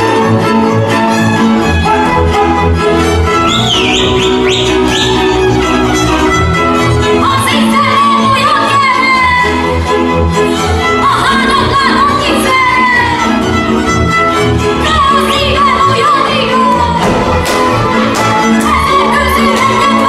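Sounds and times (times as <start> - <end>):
fiddles playing folk melody: 0.0 - 20.0
pulsing double bass: 0.0 - 20.0
dancers' steps knocking: 16.6 - 20.0.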